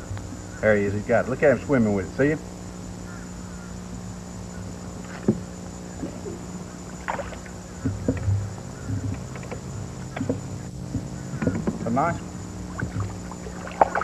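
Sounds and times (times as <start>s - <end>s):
steady low hum: 0.0s - 14.0s
low thumps: 7.7s - 13.4s
light knocks and clicks: 7.8s - 11.9s.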